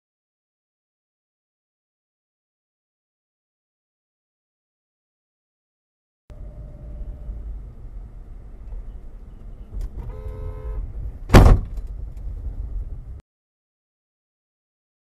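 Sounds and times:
car engine and road rumble: 6.3 - 13.2
car horn: 9.3 - 11.0.

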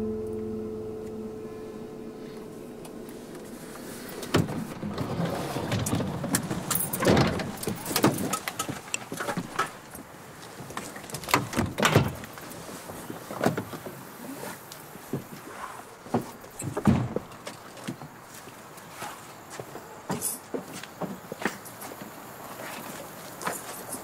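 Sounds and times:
rustling: 1.6 - 20.8
van door knocks and clunks: 16.1 - 17.5.

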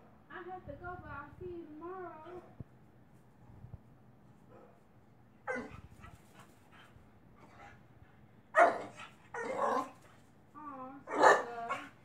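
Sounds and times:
puppy barking: 5.5 - 6.2, 8.6 - 10.0, 11.1 - 12.0.

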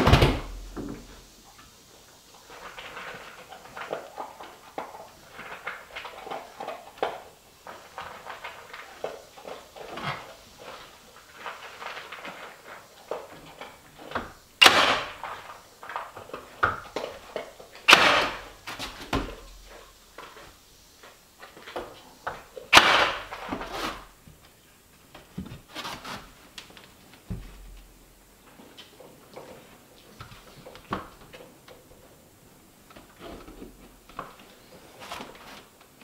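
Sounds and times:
sharp wooden knocks: 14.6 - 15.4, 17.8 - 19.6, 22.7 - 23.6.

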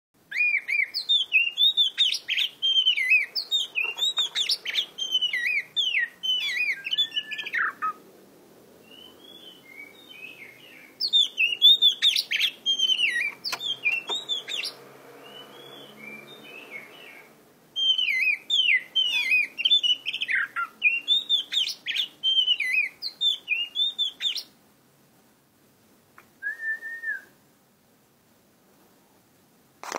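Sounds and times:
songbird whistled song: 0.3 - 8.0, 8.8 - 24.6, 26.4 - 27.4.

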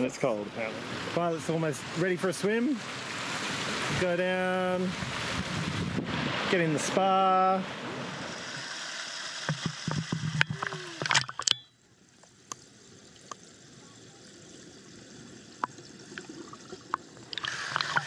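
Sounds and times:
muffled underwater hiss: 0.0 - 11.3, 12.1 - 18.0
pool water sloshing and splashing: 0.2 - 8.3, 9.5 - 18.0
faint ticks: 9.4 - 13.5.

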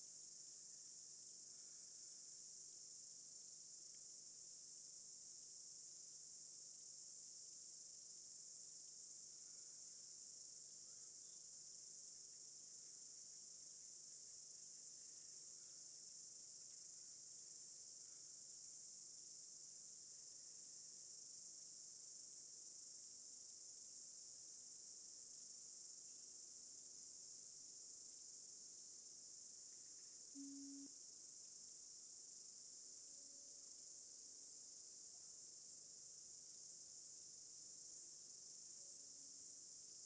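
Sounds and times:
faint high-pitched hiss: 0.0 - 40.0
brief low tone: 30.4 - 30.9.

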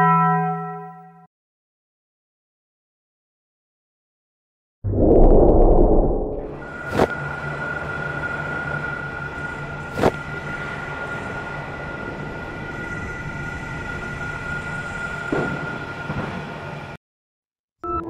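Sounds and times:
low hum: 4.9 - 7.0
rumbling noise: 4.9 - 7.0
steady high whine: 4.9 - 11.1
dark ambient droning music: 6.4 - 15.4.

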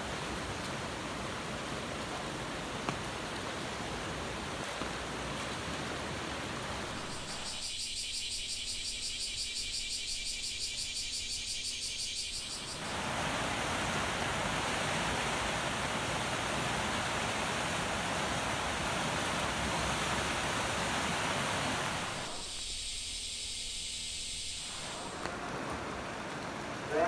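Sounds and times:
heavy rain and rushing floodwater: 0.0 - 7.5, 12.5 - 22.5, 24.7 - 27.0
high pulsing insect buzz: 5.8 - 15.7, 16.7 - 25.6.

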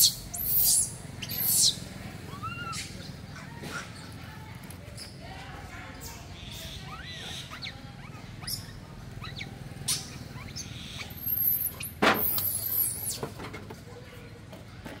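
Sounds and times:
baby monkey squeaking: 0.0 - 4.0, 6.0 - 13.2
very high squeals: 6.7 - 13.2.

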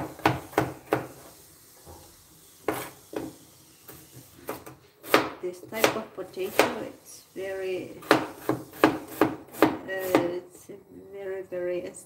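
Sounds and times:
knife chopping on plastic board: 0.0 - 1.2, 4.4 - 6.8, 8.0 - 10.4.

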